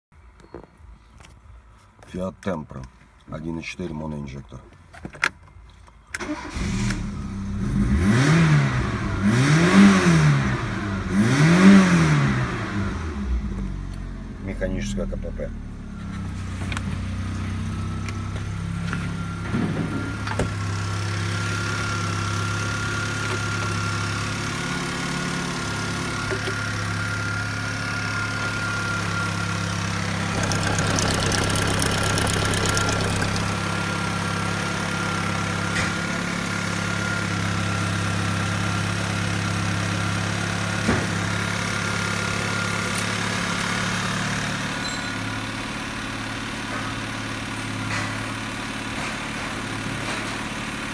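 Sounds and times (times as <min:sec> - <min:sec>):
car engine idling: 0:29.6 - 0:34.6.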